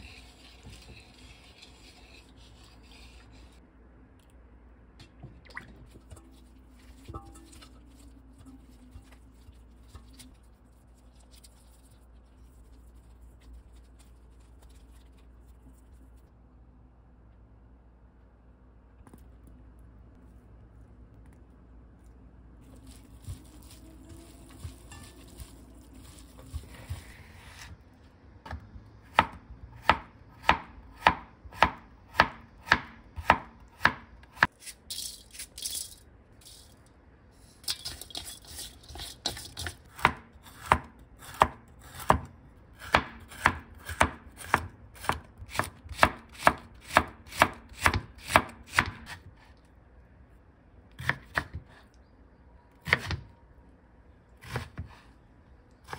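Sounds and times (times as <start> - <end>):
knife chopping on a cutting board: 28.5 - 34.5, 39.3 - 49.3, 51.0 - 51.8, 54.4 - 55.0.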